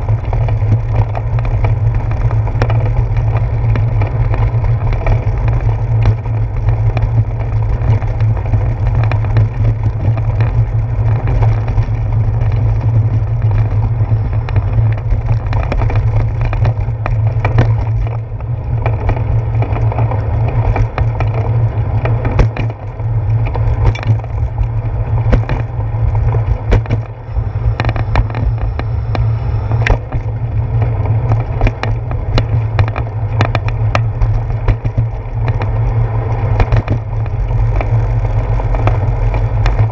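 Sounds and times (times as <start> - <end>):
bicycle rolling on pavement: 0.0 - 39.9
sharp knocks and rattles: 0.0 - 39.9.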